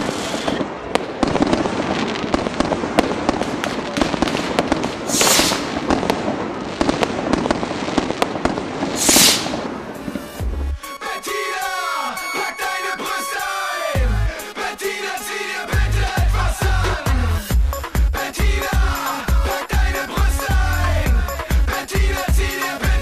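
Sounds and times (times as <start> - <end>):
fireworks bangs and crackles: 0.0 - 10.8
loud hissing bursts: 5.0 - 5.9, 8.9 - 9.7.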